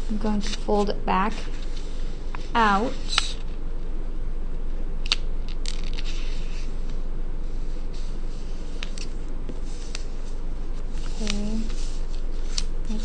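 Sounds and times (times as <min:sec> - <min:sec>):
background hiss and low hum: 0:00.0 - 0:13.0
paper crinkling and folding: 0:05.0 - 0:07.0, 0:07.7 - 0:13.0.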